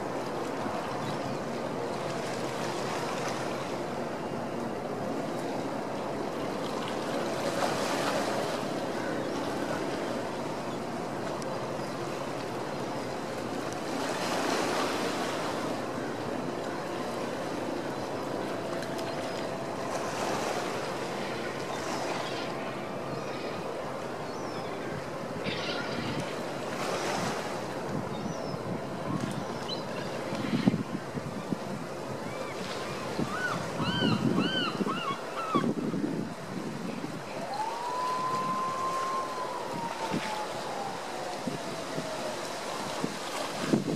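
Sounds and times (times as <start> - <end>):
faint steady engine hum: 0.0 - 43.9
water washing in surges: 24.9 - 43.9
wind on microphone: 25.8 - 43.9.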